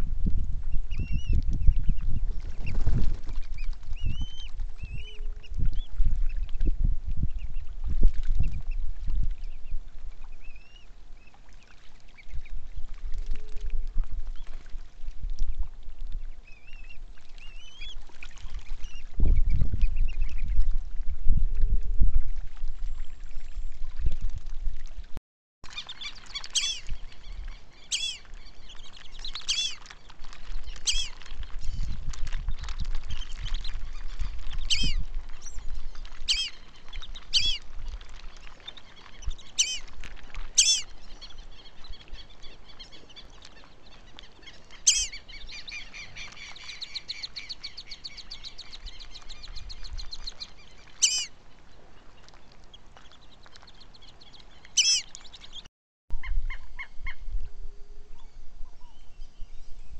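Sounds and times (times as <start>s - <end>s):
ducks whistling: 25.8s - 26.9s, 27.8s - 28.2s, 29.4s - 29.8s, 30.8s - 31.1s, 36.3s - 36.6s, 37.3s - 37.6s, 39.6s - 39.8s, 40.6s - 40.9s, 44.8s - 46.1s, 51.0s - 51.3s, 54.8s - 55.1s.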